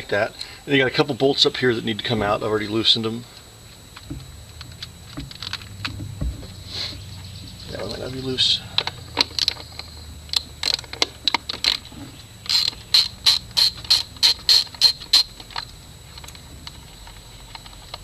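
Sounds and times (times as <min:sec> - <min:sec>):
ratchet wrench clicking: 0:12.4 - 0:17.2.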